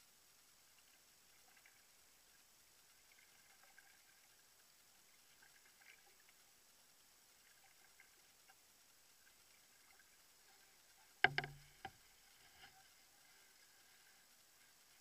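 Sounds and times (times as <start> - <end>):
soft drips and splashes: 0.0 - 15.0
canoe paddling water: 9.3 - 15.0.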